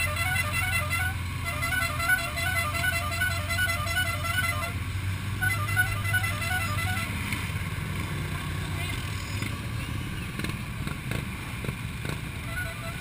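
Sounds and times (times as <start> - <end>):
bright horn-like notes: 0.0 - 4.8, 5.4 - 7.2.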